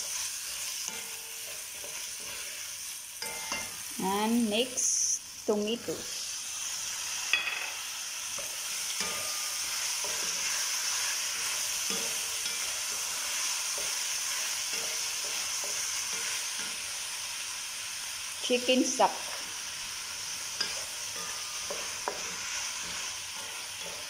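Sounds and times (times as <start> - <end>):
wooden spatula scraping a pan: 0.0 - 3.8
food sizzling in a pan: 0.0 - 24.0.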